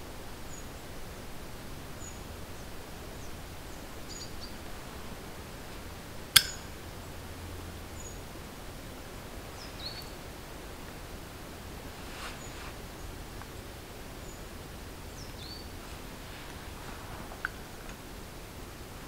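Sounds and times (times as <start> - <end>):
steady hiss: 0.0 - 19.0
sharp click: 6.4 - 6.8.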